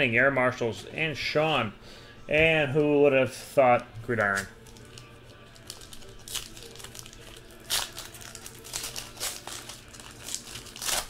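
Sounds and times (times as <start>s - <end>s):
wrapper tearing and crinkling: 4.2s - 11.0s.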